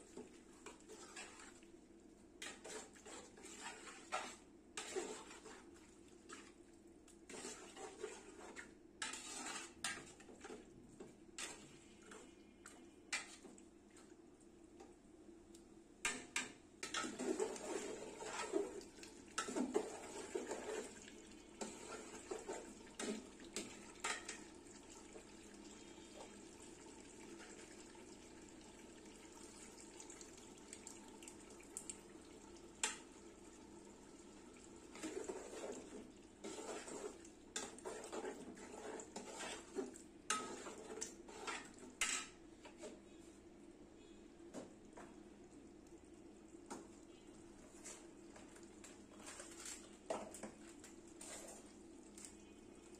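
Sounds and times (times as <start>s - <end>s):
metal spatula scraping a pot: 0.6s - 1.6s, 2.4s - 6.5s, 7.3s - 10.7s, 11.4s - 13.5s, 16.0s - 24.5s, 34.9s - 43.0s, 51.2s - 51.8s.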